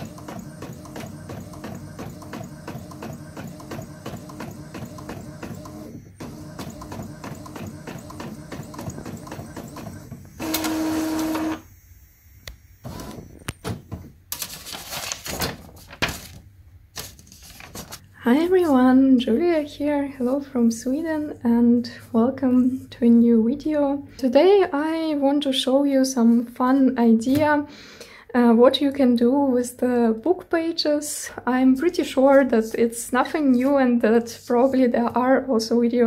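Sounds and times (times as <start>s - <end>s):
printer whirring: 0.0s - 14.1s
paper rustling: 14.3s - 18.0s.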